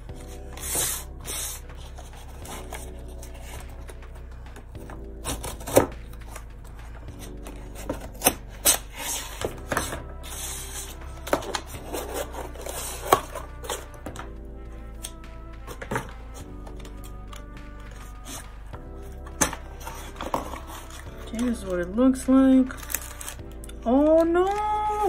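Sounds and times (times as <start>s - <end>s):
scissors scraping tape and cardboard: 0.2s - 4.0s, 5.2s - 14.2s, 15.0s - 18.5s, 22.8s - 23.7s.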